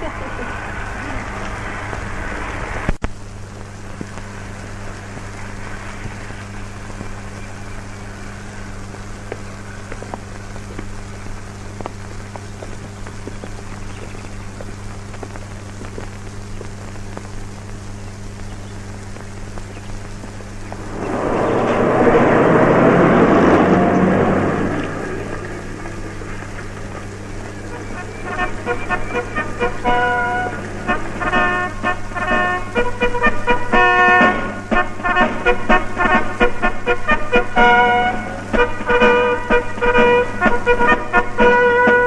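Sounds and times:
crackles: 0:00.0 - 0:42.0
film soundtrack hiss: 0:00.0 - 0:42.0
low hum: 0:15.4 - 0:40.8
motor vehicle passing: 0:20.5 - 0:33.2.

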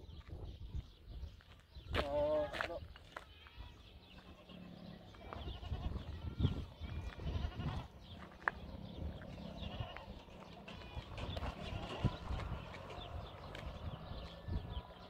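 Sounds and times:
farm animals bleating: 0:01.9 - 0:13.4.

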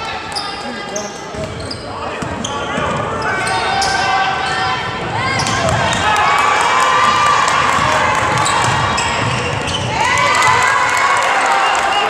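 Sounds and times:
spectators shouting and cheering: 0:02.6 - 0:12.0.

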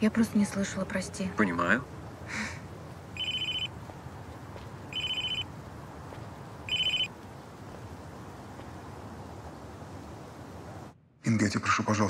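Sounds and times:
mobile phone ringing: 0:03.2 - 0:03.8, 0:04.9 - 0:05.5, 0:06.7 - 0:07.1.

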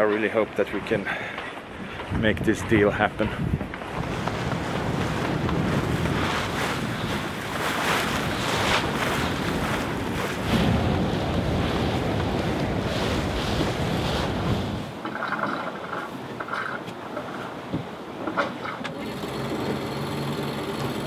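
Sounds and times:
wind buffeting the microphone: 0:01.6 - 0:15.0
water rushing along a hull: 0:03.0 - 0:21.0.

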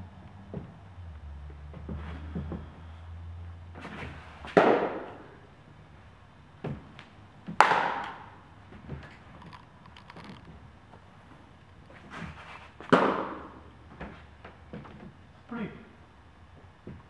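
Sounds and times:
baseball smacking into glove: 0:04.5 - 0:05.2, 0:07.5 - 0:08.3, 0:12.0 - 0:14.2.

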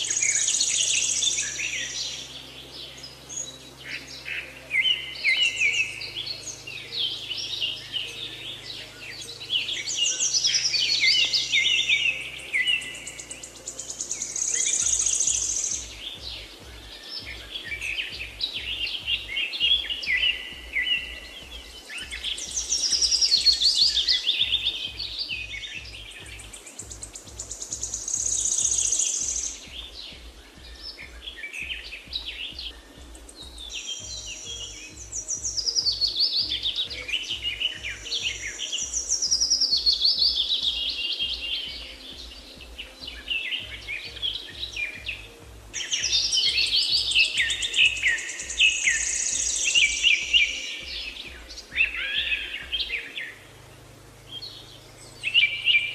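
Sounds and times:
bird chirping and trilling: 0:00.0 - 0:55.9
low pulsing beat: 0:12.2 - 0:55.6.

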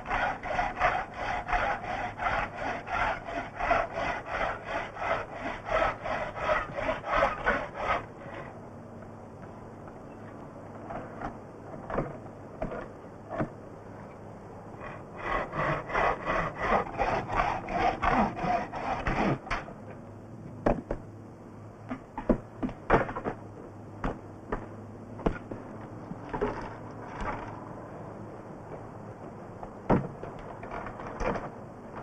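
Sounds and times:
bow saw cutting a log: 0:00.0 - 0:08.5, 0:14.8 - 0:19.7.

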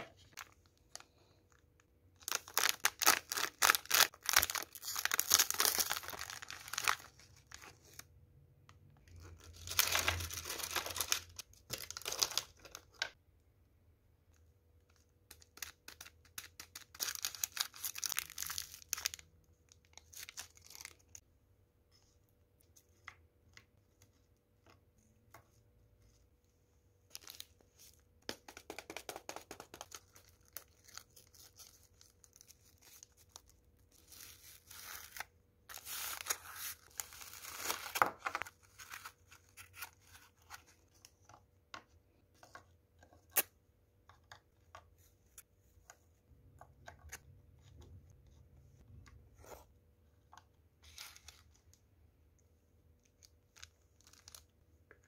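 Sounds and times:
packaging tearing and crinkling: 0:02.3 - 0:07.2
paper wrapper ripping: 0:02.3 - 0:08.0.

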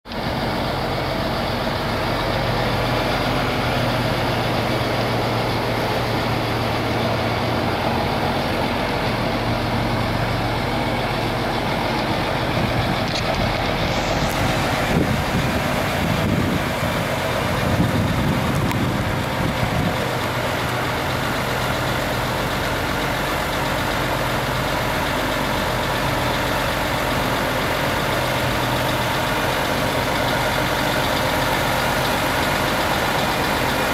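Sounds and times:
diesel truck engine running: 0:00.1 - 0:33.9.

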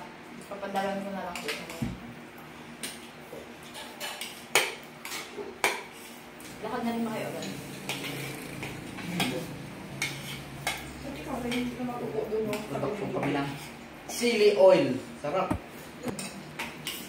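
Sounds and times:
cutlery clinking on plates: 0:02.8 - 0:05.9, 0:07.5 - 0:10.9.

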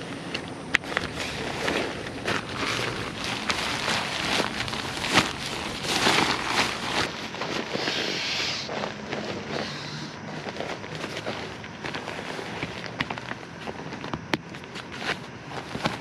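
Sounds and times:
nylon fabric rustling: 0:00.8 - 0:14.0
short air hiss: 0:07.8 - 0:08.7, 0:09.5 - 0:10.2.

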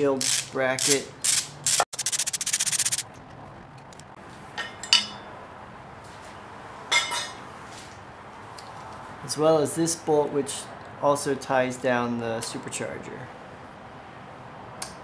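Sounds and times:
hand ratchet clicking: 0:00.2 - 0:03.0.

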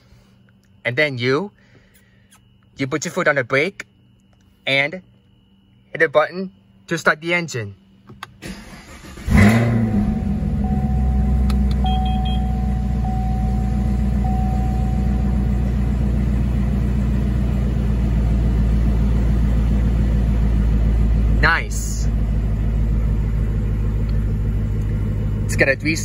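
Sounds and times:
car engine idling: 0:08.6 - 0:26.0.

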